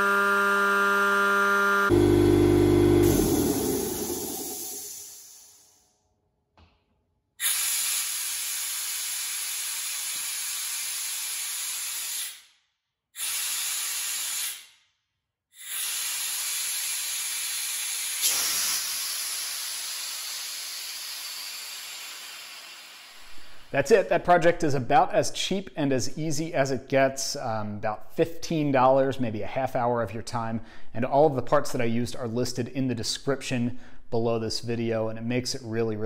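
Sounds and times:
compressed air hissing from drain valve: 3.0 - 5.7, 7.4 - 12.5, 13.2 - 14.8, 15.6 - 23.8.

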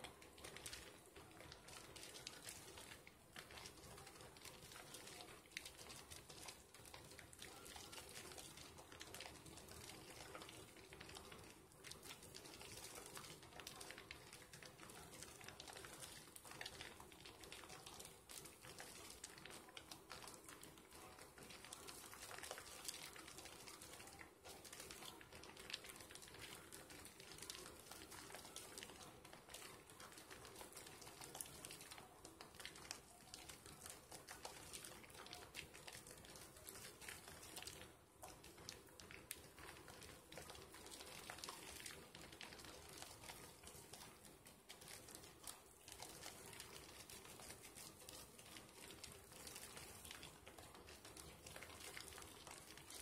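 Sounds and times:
soap lather squishing: 0.0 - 53.0.

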